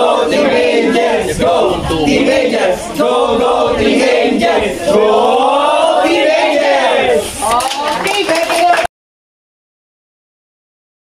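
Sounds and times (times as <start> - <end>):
group singing without instruments: 0.0 - 7.5.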